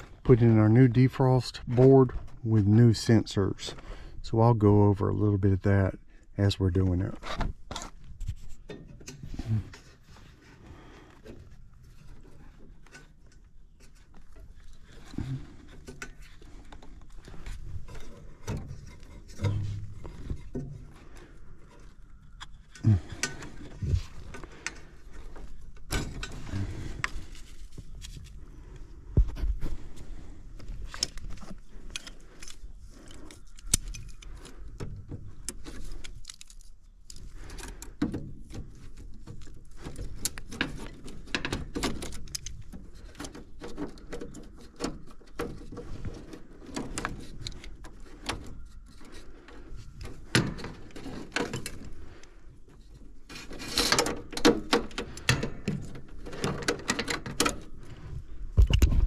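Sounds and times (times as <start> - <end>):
hands rattling wires and connectors: 11.0 - 59.0.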